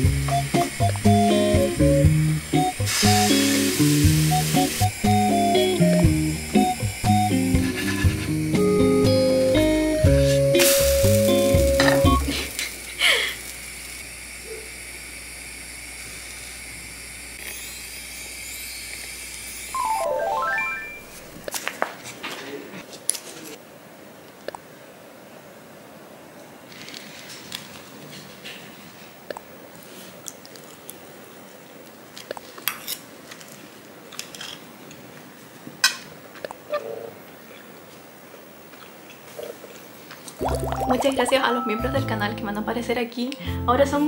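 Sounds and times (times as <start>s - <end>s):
pancake sizzling in pan: 2.5s - 5.7s, 10.6s - 14.3s.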